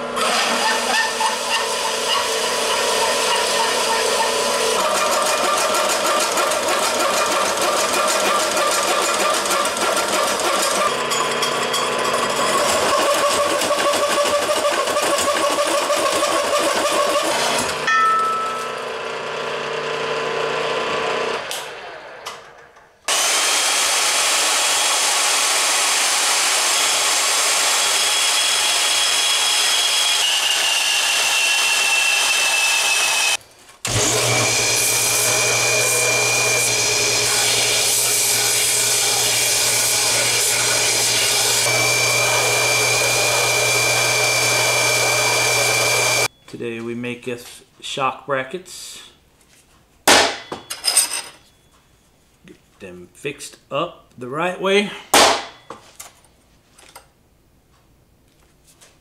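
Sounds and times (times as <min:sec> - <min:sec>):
milling machine motor hum: 0:00.0 - 0:17.8, 0:23.1 - 0:46.3
hole saw cutting steel: 0:00.0 - 0:18.5, 0:23.1 - 0:46.3
band saw whining: 0:00.0 - 0:46.3.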